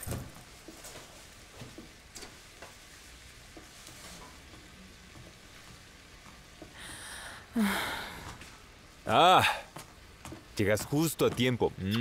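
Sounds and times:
soft knocks and rustles: 0.0s - 6.7s.

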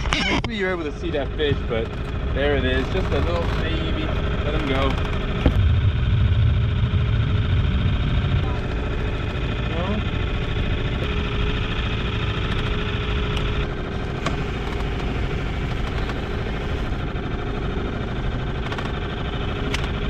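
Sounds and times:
outboard motor running: 0.0s - 20.0s.

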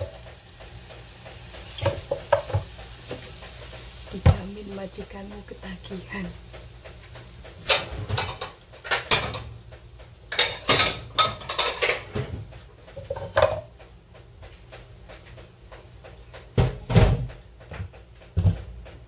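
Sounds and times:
dishes and utensils clattering: 6.9s - 9.6s, 10.3s - 13.8s.

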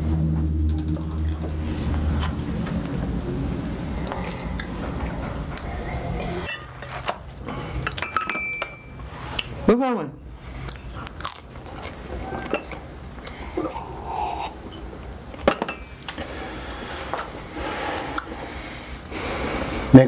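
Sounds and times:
low steady drone: 0.0s - 19.9s
cutlery and dishes clinking: 6.4s - 7.1s, 7.8s - 8.9s.

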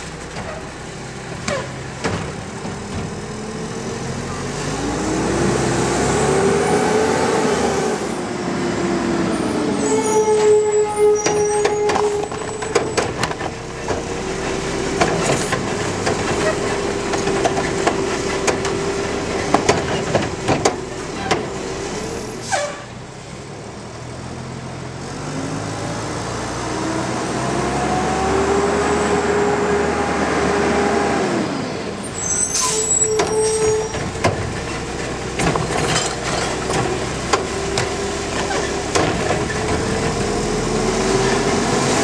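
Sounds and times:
hydraulics whining: 0.0s - 23.0s, 29.6s - 42.0s
diesel engine revving: 0.0s - 42.0s
cart arm knocks and clanks: 11.2s - 21.7s, 33.2s - 40.4s
air brakes hissing: 22.3s - 23.0s, 32.2s - 34.0s.

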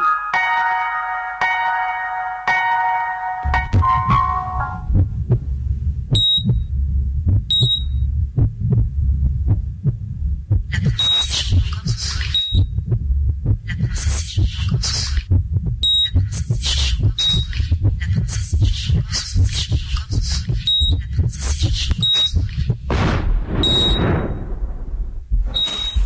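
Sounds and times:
low rapid throbbing pulse: 3.5s - 26.0s
short high beeps: 7.5s - 8.0s, 23.6s - 24.1s, 25.5s - 26.0s.

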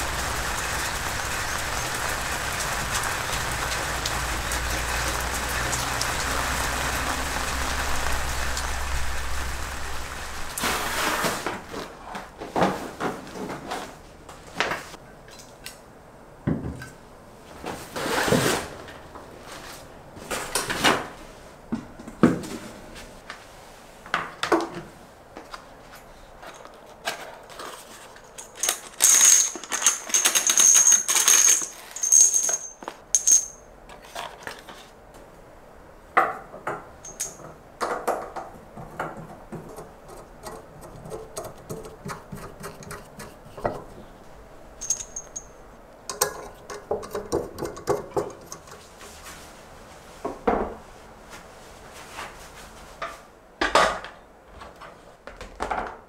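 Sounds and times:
metal parts clinking: 28.2s - 34.4s, 37.0s - 37.4s, 44.8s - 46.5s.

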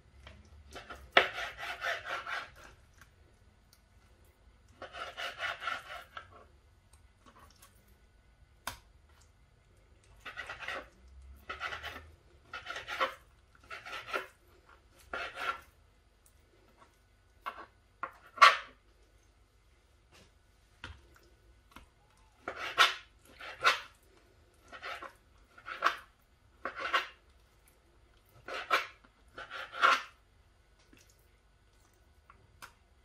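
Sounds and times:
knife sawing through meat: 1.2s - 2.7s, 4.8s - 6.2s, 28.4s - 30.1s.

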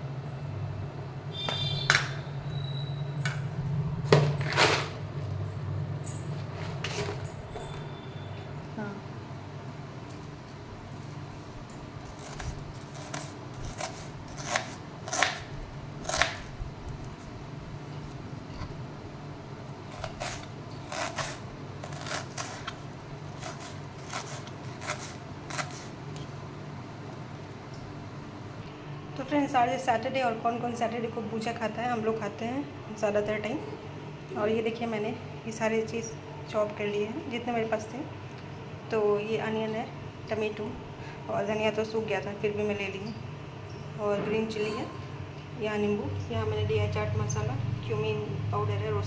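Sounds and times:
knife slicing onion on cutting board: 12.1s - 16.5s, 19.9s - 26.0s.

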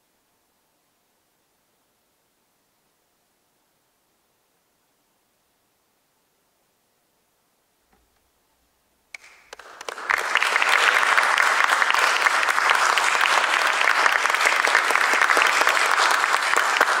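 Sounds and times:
audience applause: 9.2s - 17.0s.

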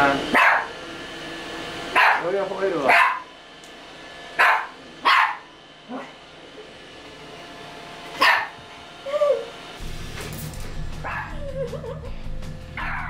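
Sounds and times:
small dog barking: 0.3s - 0.7s, 1.9s - 2.3s, 2.9s - 3.3s, 4.4s - 6.2s, 8.2s - 8.6s, 11.0s - 11.4s, 12.8s - 13.0s
dog yelp: 0.4s - 0.7s, 2.0s - 2.2s, 2.9s - 3.3s, 4.4s - 5.5s, 8.2s - 8.5s, 11.0s - 11.9s, 12.8s - 13.0s.

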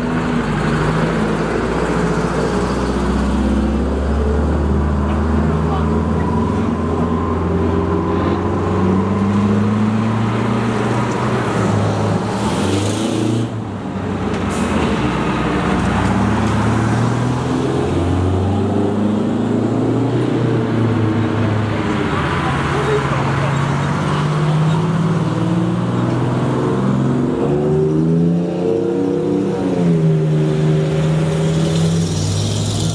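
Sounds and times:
fire truck engines droning: 0.0s - 32.9s.

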